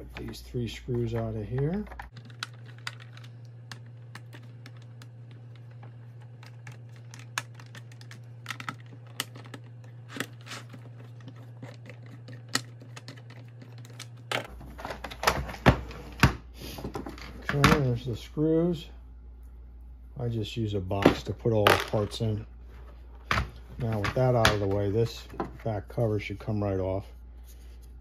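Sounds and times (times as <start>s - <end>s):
fingers handling screws and case: 0.0s - 15.3s
steady low hum: 0.0s - 28.0s.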